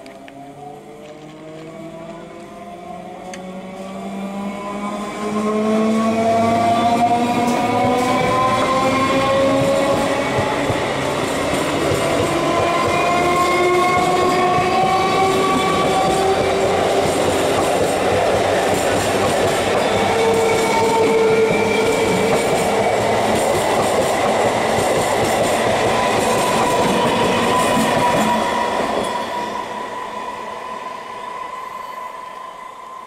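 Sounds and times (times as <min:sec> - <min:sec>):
rail clatter: 0:07.4 - 0:29.1.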